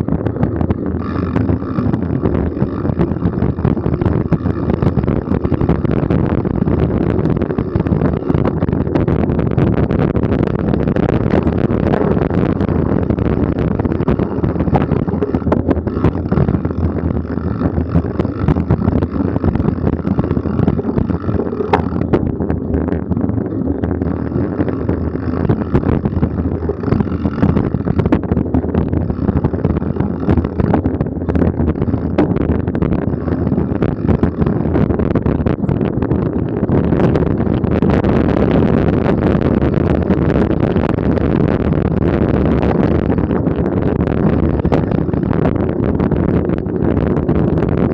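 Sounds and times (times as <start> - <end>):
bike knocks and rattles: 0.0 - 37.7
bike tyre rumble: 0.0 - 47.9
wind rush on microphone: 0.0 - 47.9.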